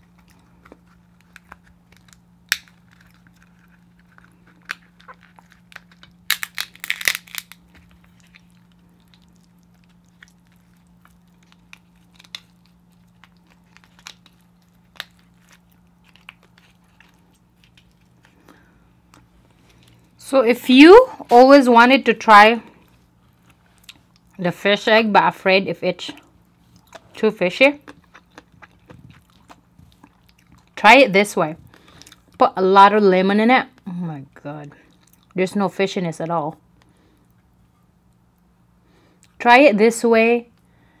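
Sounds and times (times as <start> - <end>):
faint low hum: 0.0 - 41.0
crab shell cracking: 0.1 - 19.8.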